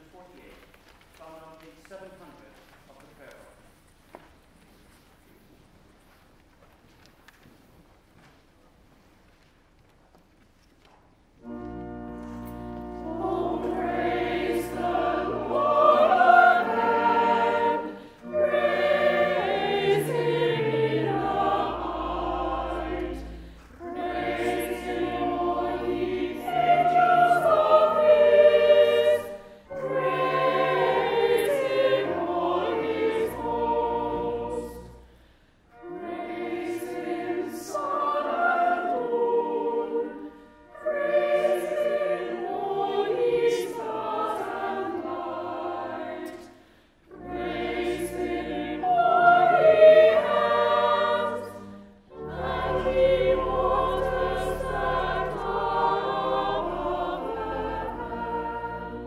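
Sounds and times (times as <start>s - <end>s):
organ: 11.4s - 34.9s
church choir singing: 11.4s - 59.0s.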